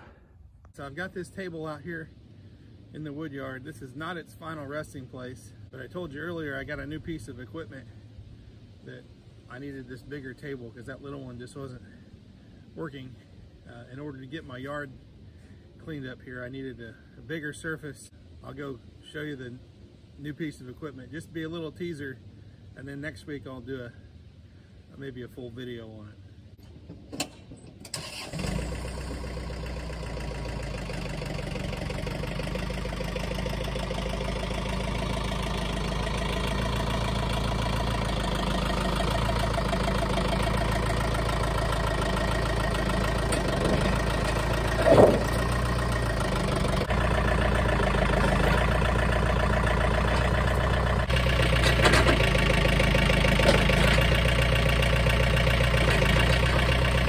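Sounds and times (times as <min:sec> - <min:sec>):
tractor engine running: 0:26.6 - 0:57.0
metal clank: 0:43.3 - 0:45.5.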